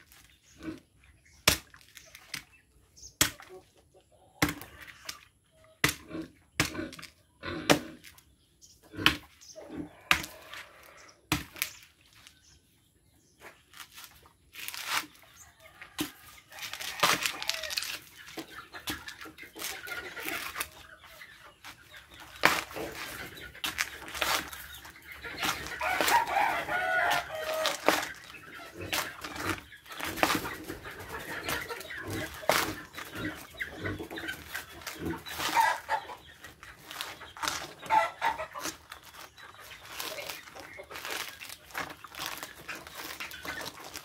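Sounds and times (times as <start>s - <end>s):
chicken clucking: 2.4s - 11.3s, 15.1s - 44.0s
coconut husk tearing: 10.1s - 12.3s, 13.6s - 15.2s, 16.0s - 20.8s, 21.7s - 30.5s, 31.5s - 36.0s, 36.8s - 44.0s.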